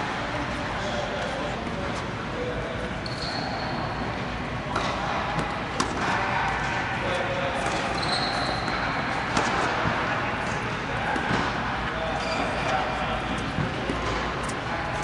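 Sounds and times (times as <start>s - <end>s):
indoor background noise: 0.0s - 15.0s.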